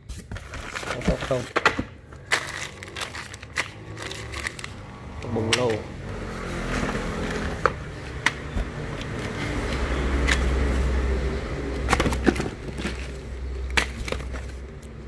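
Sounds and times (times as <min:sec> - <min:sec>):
plastic bags crinkling: 0:00.2 - 0:05.0, 0:11.8 - 0:15.0.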